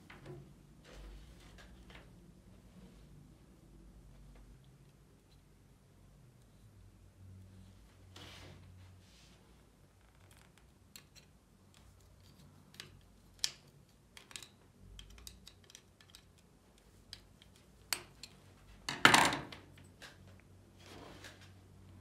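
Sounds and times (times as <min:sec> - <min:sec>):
small metal clicks and taps: 0:10.3 - 0:18.4.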